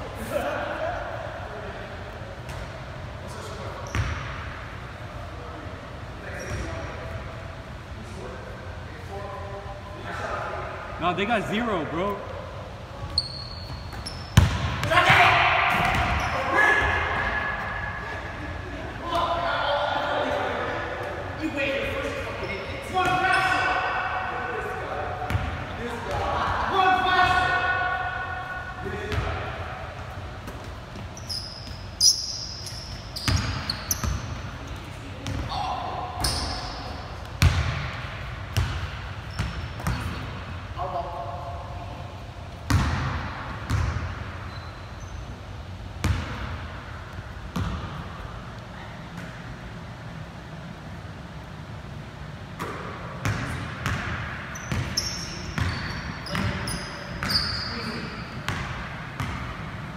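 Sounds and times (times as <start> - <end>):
sneaker squeaks on floor: 3.8 - 4.3, 6.3 - 6.9, 13.0 - 14.9, 15.7 - 16.6, 30.9 - 34.7, 36.2 - 37.6, 39.2 - 40.2, 44.4 - 45.5, 54.5 - 59.4
basketball bouncing on wood floor: 14.0 - 14.9, 37.4 - 37.9, 42.7 - 43.1.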